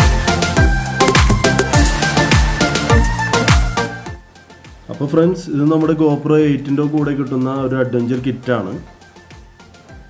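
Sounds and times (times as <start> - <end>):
deep bass kicks: 0.0 - 3.8
sharp percussion hits: 0.0 - 3.8.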